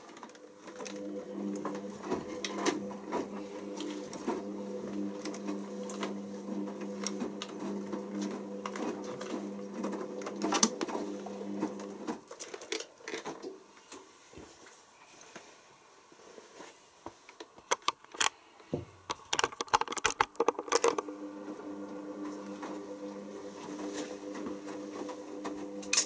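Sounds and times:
washing machine motor humming: 0.0 - 12.3, 18.8 - 26.0
clicks and knocks: 19.1 - 21.0.

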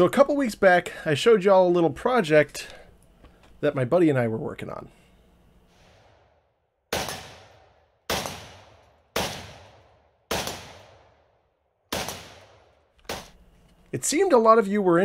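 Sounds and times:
rifle shots: 6.9 - 13.4.

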